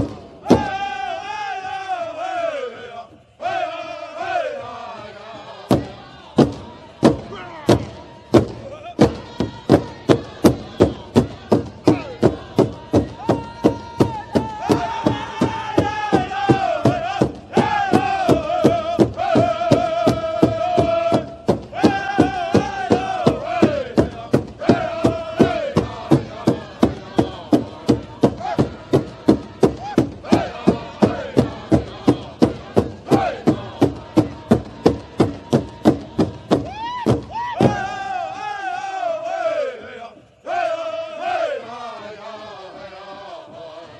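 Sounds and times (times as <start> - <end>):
steady drumbeat: 0.0 - 1.0, 5.7 - 38.1
chanted vocal melody: 0.0 - 43.9.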